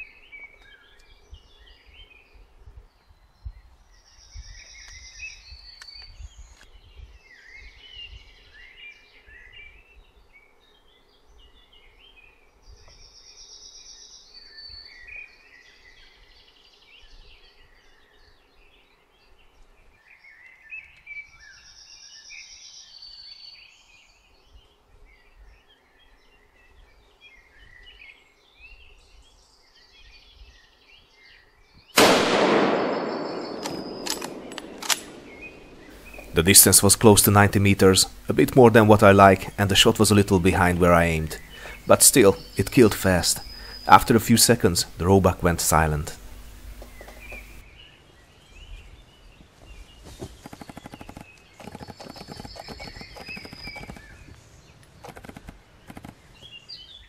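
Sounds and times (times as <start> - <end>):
songbirds chirping: 0.0 - 57.0
rifle shot echoing: 32.0 - 36.4
sharp clicks: 32.0 - 37.1, 50.4 - 54.1, 54.8 - 56.2.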